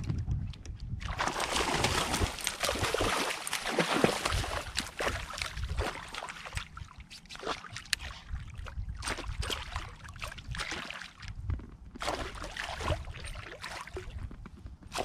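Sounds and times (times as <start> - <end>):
fish splashing in water: 1.1 - 8.2.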